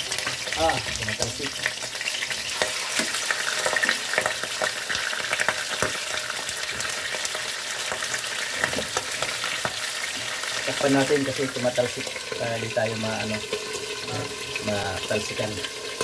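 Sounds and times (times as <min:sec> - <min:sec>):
fish frying in hot oil: 0:00.0 - 0:16.0
oil popping: 0:00.0 - 0:16.0.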